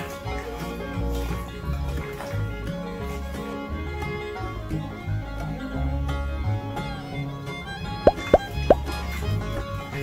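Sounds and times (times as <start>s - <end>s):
plucked strings music: 0.0s - 10.0s
moving bass line: 8.1s - 8.9s.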